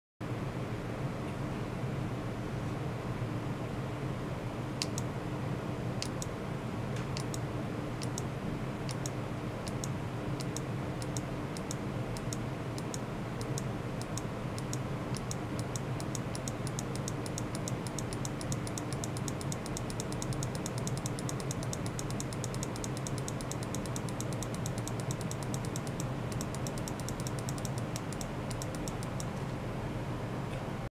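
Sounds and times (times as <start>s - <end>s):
steady low hum: 0.2s - 30.9s
high-pitched ticking clicks: 4.8s - 5.1s, 6.0s - 6.3s, 7.2s - 7.4s, 8.0s - 8.3s, 8.9s - 29.3s.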